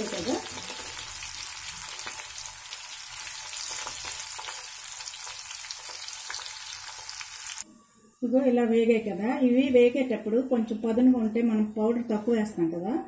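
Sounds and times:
corn deep-frying in oil: 0.0s - 7.6s.

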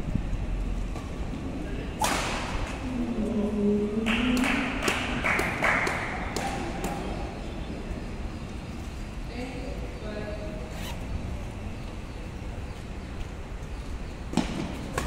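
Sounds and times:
sharp smacks: 2.0s - 2.7s
racket striking shuttlecock: 2.0s - 2.8s.

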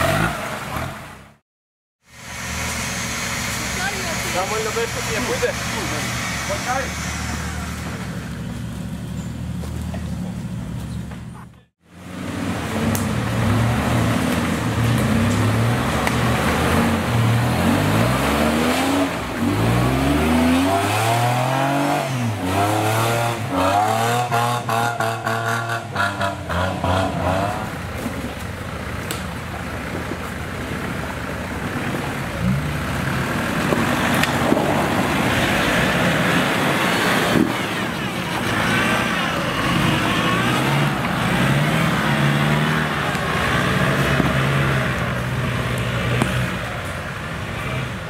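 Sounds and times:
engine revving: 0.0s - 1.4s, 11.8s - 28.1s, 31.6s - 48.0s.

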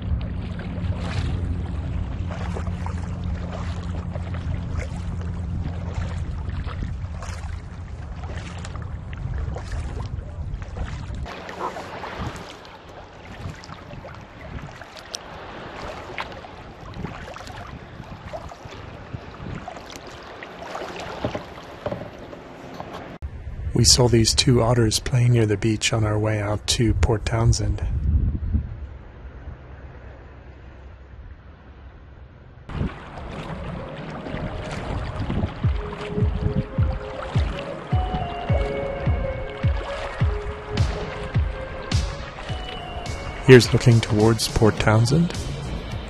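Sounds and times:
wind rumble on microphone: 0.0s - 20.2s, 21.2s - 25.9s, 26.6s - 30.2s, 32.7s - 46.0s
paddle blades splashing: 0.0s - 23.2s, 32.7s - 46.0s
water lapping against hull: 0.0s - 23.2s, 32.7s - 46.0s.

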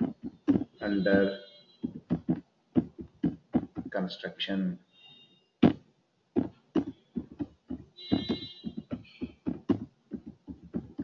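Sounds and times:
keyboard typing: 0.0s - 4.0s, 6.4s - 11.0s.

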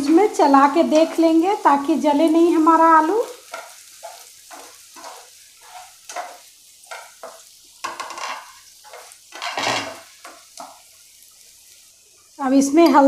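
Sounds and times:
food sizzling in oil: 0.0s - 13.0s
spatula scraping a pan: 3.2s - 11.7s.

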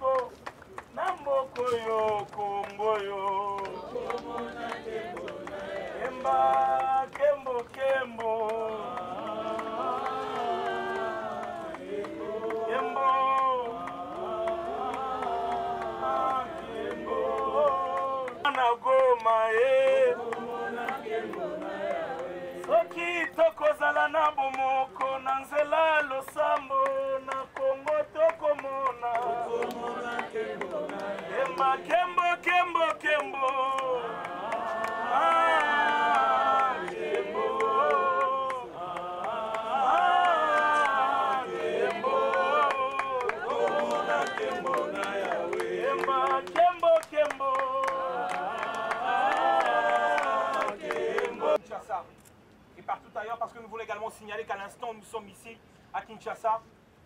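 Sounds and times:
man singing through a megaphone: 0.0s - 51.6s
voices singing along: 0.0s - 51.6s.

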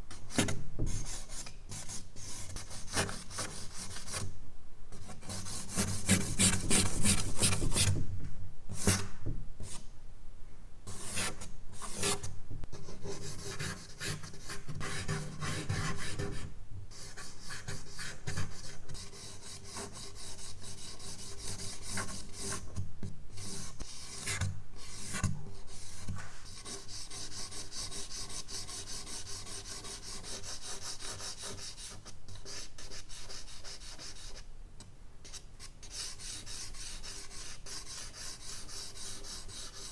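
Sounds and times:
charcoal scratching on paper: 17.0s - 22.7s, 23.4s - 34.4s, 35.3s - 39.9s.

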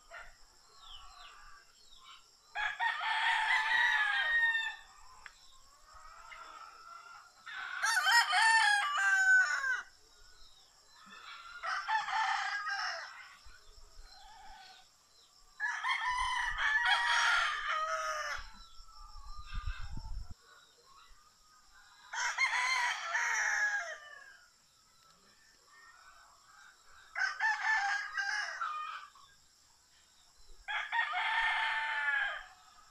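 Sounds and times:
roosters crowing: 2.5s - 5.2s, 5.8s - 10.0s, 10.9s - 13.5s, 15.6s - 20.0s, 22.1s - 24.5s, 25.7s - 29.3s, 30.6s - 32.9s.

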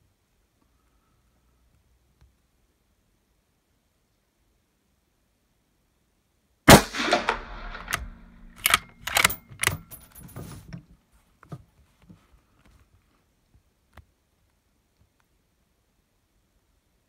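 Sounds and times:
rifle shot echoing indoors: 6.7s - 9.8s
rifle bolt metallic clicks: 6.7s - 10.2s.

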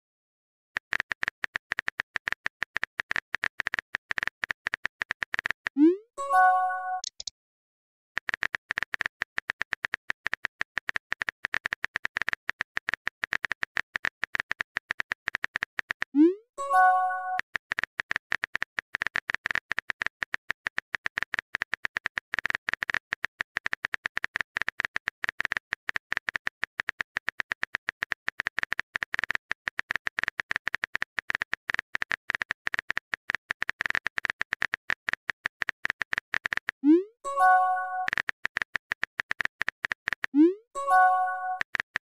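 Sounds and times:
phone keyboard typing clicks: 0.8s - 5.8s, 6.4s - 7.3s, 8.2s - 16.2s, 16.8s - 42.0s
message chime: 6.2s - 7.1s, 37.3s - 38.1s, 40.8s - 41.6s.

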